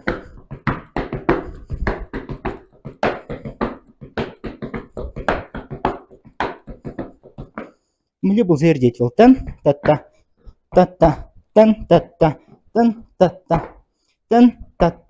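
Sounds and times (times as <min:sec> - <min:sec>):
heavy boots stamping on hard floor: 0:00.0 - 0:07.8.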